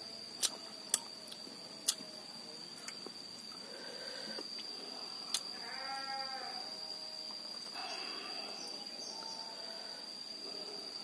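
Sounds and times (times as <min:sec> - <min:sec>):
insects droning: 0:00.0 - 0:11.0
short bleat: 0:05.5 - 0:06.6.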